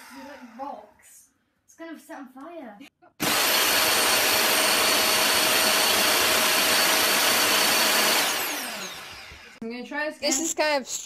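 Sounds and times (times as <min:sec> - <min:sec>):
vacuum cleaner motor whining: 0:00.0 - 0:01.0, 0:03.2 - 0:09.6.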